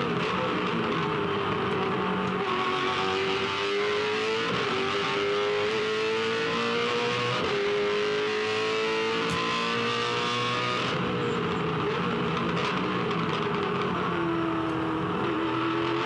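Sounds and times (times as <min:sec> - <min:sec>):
race car engine at full throttle: 0:00.0 - 0:16.0
road and wind noise: 0:00.0 - 0:16.0.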